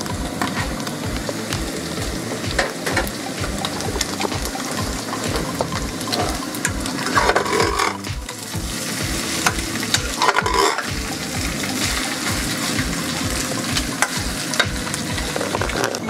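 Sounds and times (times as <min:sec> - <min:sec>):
food sizzling in pan: 0:00.0 - 0:16.0
spatula tapping pan: 0:00.0 - 0:16.0
metal spatula scraping pan: 0:05.0 - 0:08.1, 0:08.9 - 0:10.9.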